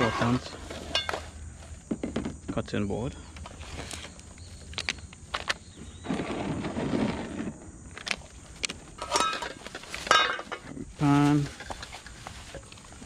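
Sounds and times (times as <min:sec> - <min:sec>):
bags rustling: 0:03.4 - 0:13.0
cooking gear clicks and knocks: 0:07.9 - 0:13.0.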